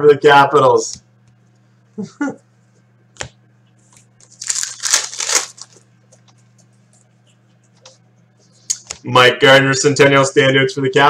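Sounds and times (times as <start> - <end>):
trading cards rustling: 4.2 - 5.8.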